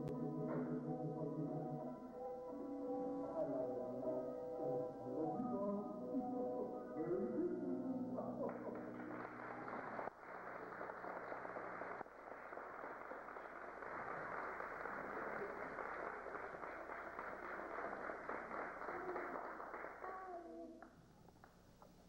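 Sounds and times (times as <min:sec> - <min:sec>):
audience applauding: 0:08.5 - 0:21.5.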